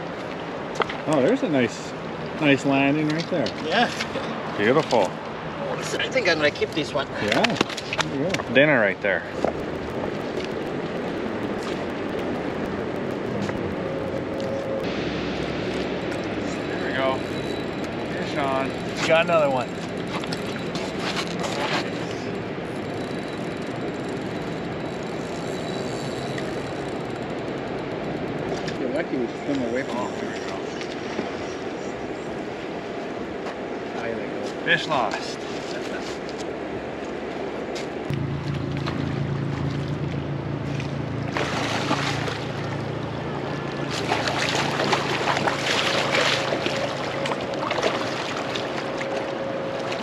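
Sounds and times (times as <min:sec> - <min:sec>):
low motor hum: 0:08.0 - 0:28.9, 0:38.1 - 0:50.0
river rushing: 0:38.3 - 0:50.0
fish splashing in water: 0:38.6 - 0:42.9, 0:43.8 - 0:50.0.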